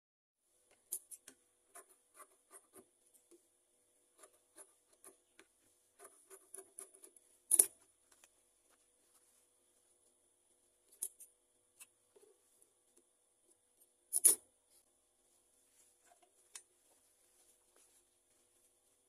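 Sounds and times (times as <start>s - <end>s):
fabric rustling: 14.7s - 19.0s.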